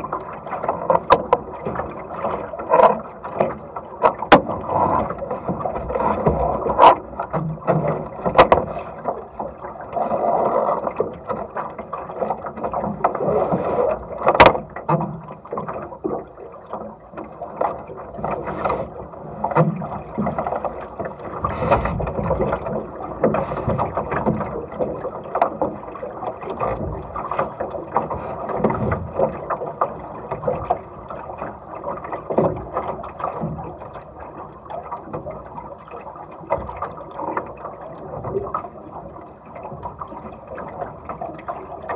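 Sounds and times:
sharp knocks on a boat: 0:00.0 - 0:09.2, 0:14.1 - 0:33.9
water slapping along a hull: 0:00.0 - 0:41.9.

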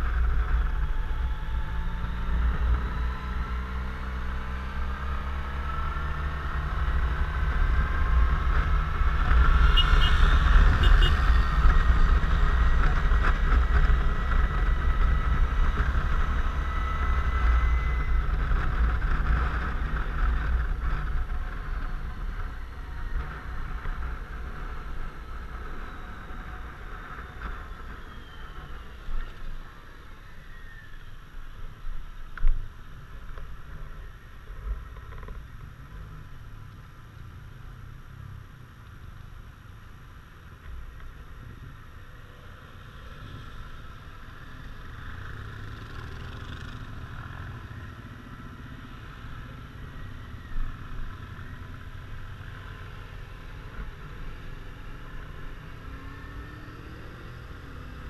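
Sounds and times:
scooter engine and drive whine: 0:00.0 - 0:58.0.

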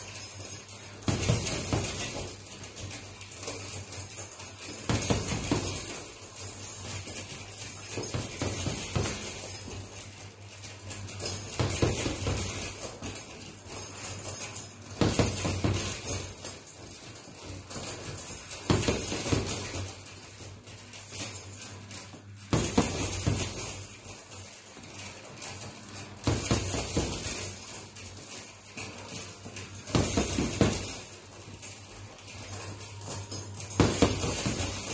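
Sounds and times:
metal chains jingling: 0:00.0 - 0:34.9
punches hitting heavy bag: 0:01.0 - 0:02.9, 0:04.6 - 0:06.4, 0:07.8 - 0:09.9, 0:11.2 - 0:13.4, 0:14.9 - 0:16.5, 0:17.6 - 0:19.9, 0:22.5 - 0:23.8, 0:26.2 - 0:27.5, 0:29.8 - 0:31.1, 0:33.7 - 0:34.9.

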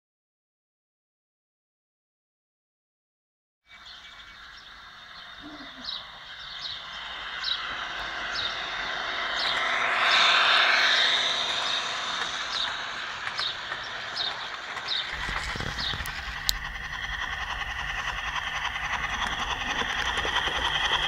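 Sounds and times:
model locomotive engine sound: 0:03.7 - 0:21.0
regular ticking: 0:11.0 - 0:21.0.

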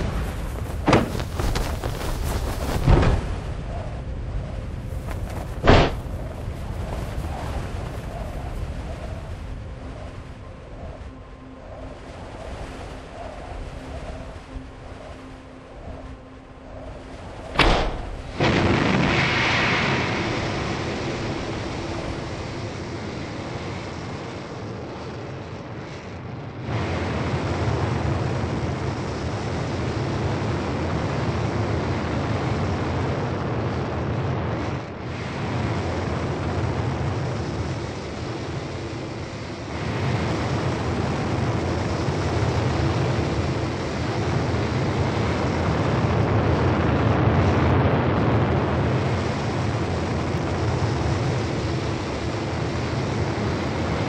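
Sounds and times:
aircraft rumble: 0:00.0 - 0:12.0.

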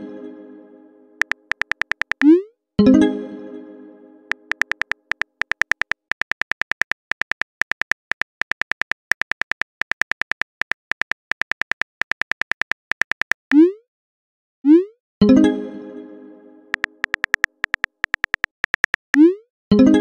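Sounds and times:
phone keyboard typing clicks: 0:01.2 - 0:02.3, 0:04.3 - 0:13.6, 0:16.7 - 0:19.2.

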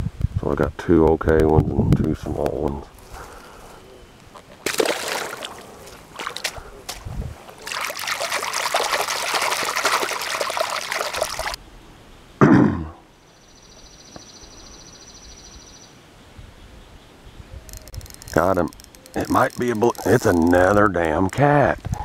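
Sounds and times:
hands splashing in water: 0:04.6 - 0:11.6.

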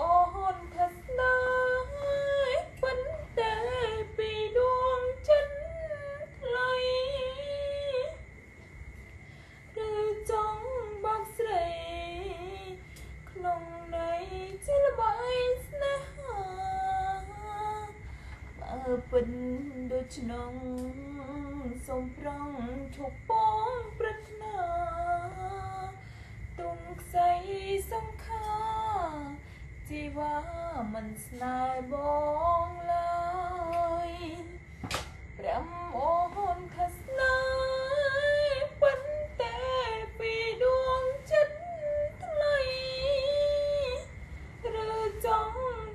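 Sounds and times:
woman singing: 0:00.0 - 0:08.3, 0:09.7 - 0:45.9.

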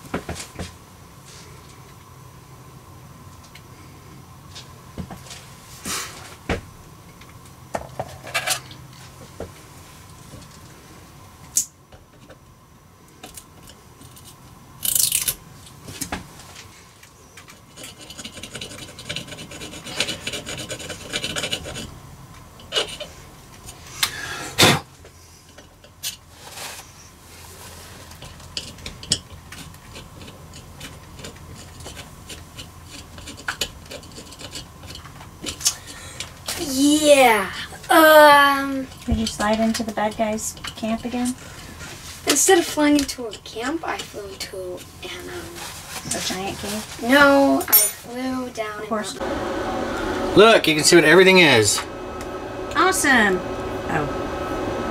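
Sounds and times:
rasping scrape: 0:17.5 - 0:22.0.

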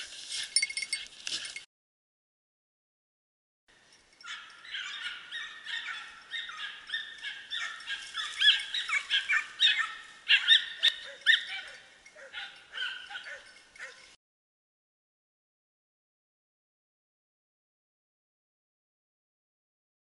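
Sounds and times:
dogs baying and barking: 0:04.2 - 0:14.2.

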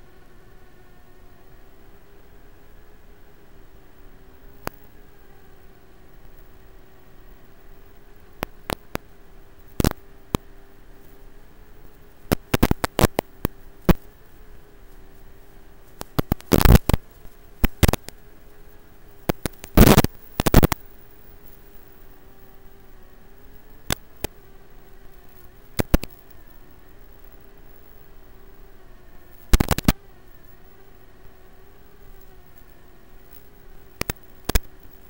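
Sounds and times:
faint steady hum: 0:00.0 - 0:35.0
static hiss: 0:00.0 - 0:35.0
sharp crackles: 0:07.7 - 0:22.2, 0:22.8 - 0:28.2, 0:29.2 - 0:30.0, 0:31.3 - 0:35.0.

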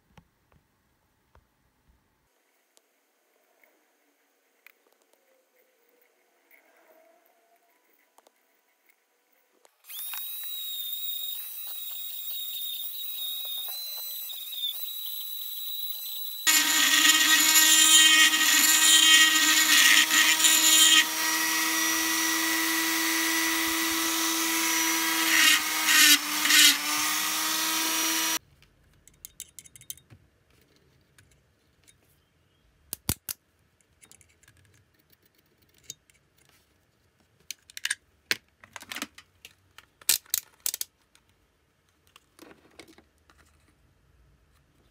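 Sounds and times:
rotary tool grinding metal: 0:09.9 - 0:28.4.

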